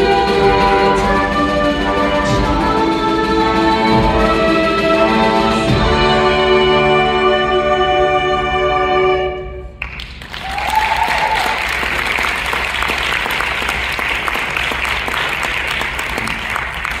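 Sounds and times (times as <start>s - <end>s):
concert band chord: 0.0s - 9.7s
audience applause: 9.8s - 17.0s
person cheering: 10.4s - 11.7s.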